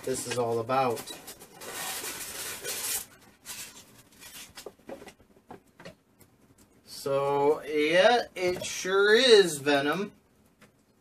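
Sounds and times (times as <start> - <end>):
cardboard packaging rustling: 0.1 - 5.2.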